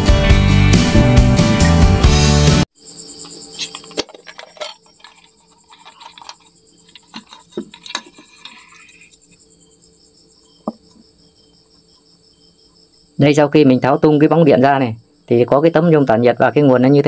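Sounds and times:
background music: 0.0s - 2.6s
crickets chirring: 2.7s - 17.0s
clicks and knocks of plastic: 3.6s - 9.2s.

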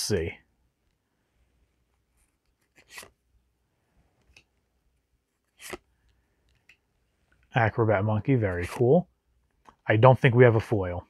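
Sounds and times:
cards swishing against cards: 1.9s - 3.2s, 5.4s - 5.9s.

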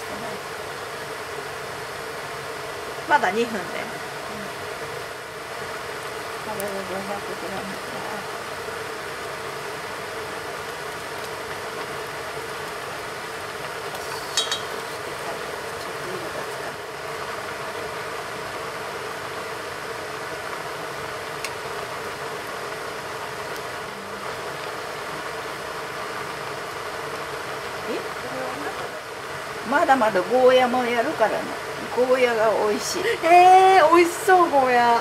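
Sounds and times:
pot boiling hard: 0.0s - 35.0s
utensil clinking on metal pot: 14.1s - 14.9s.

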